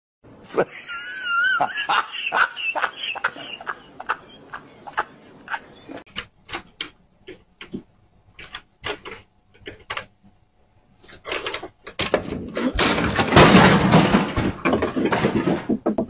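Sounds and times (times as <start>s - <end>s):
clattering: 11.1s - 16.0s
loud crash: 12.8s - 14.6s.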